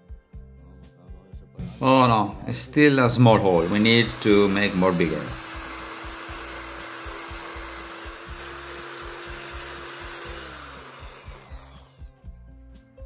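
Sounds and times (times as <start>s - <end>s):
background music with beat: 0.0s - 6.4s, 8.1s - 13.0s
electric drill grinding: 3.2s - 12.2s.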